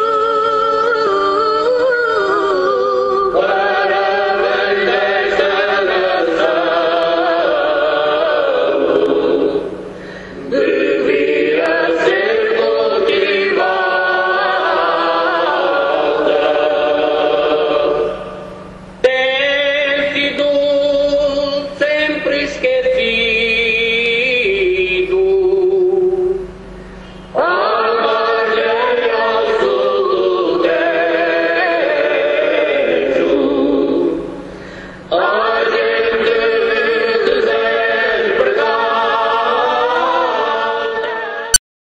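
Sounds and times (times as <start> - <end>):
choir chanting: 0.0 - 9.7, 10.4 - 18.4, 27.4 - 34.2, 35.1 - 41.6
group singing long notes: 0.0 - 26.5, 27.3 - 41.6.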